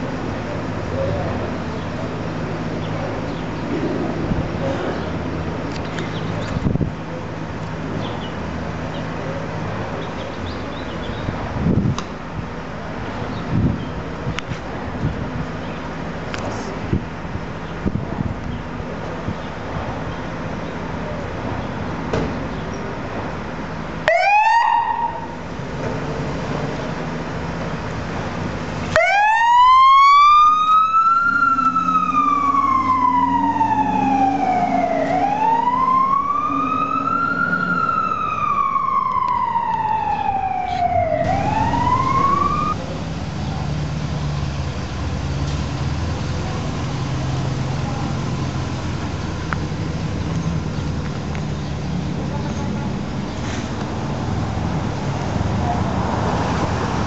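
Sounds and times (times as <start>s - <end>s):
truck engine rumble: 0.0s - 57.0s
fire engine siren wailing: 24.0s - 25.6s, 28.8s - 50.3s.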